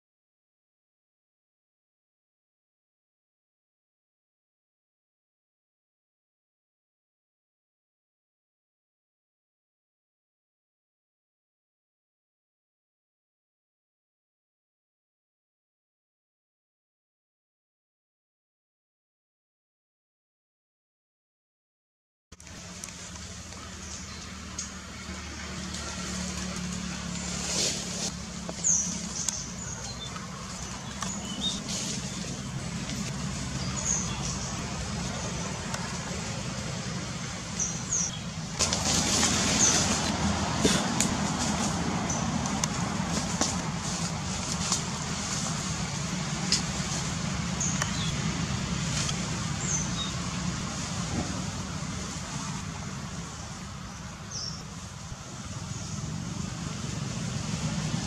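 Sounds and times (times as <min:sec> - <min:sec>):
low hum of distant engine: 0:22.4 - 0:58.0
low outdoor rumble: 0:22.4 - 0:58.0.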